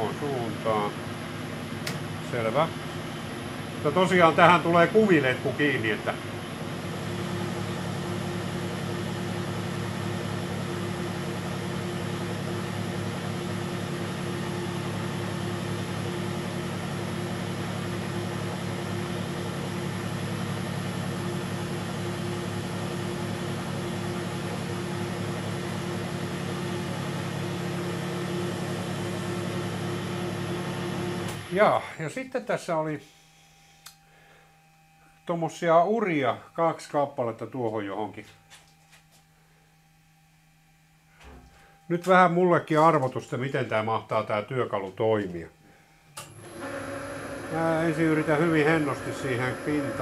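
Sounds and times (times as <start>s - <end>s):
metal lathe running: 0.0s - 31.6s, 46.3s - 50.0s.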